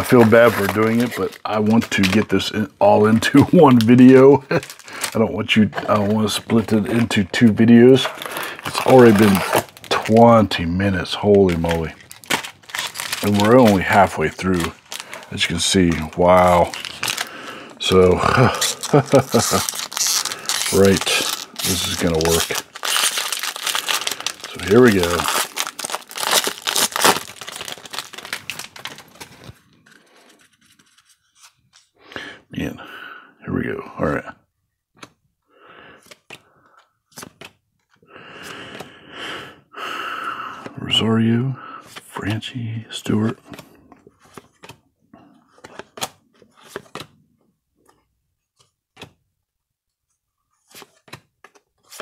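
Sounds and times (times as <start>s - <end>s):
foil wrapper tearing and crinkling: 0.0s - 5.2s, 7.9s - 10.2s, 11.4s - 29.6s.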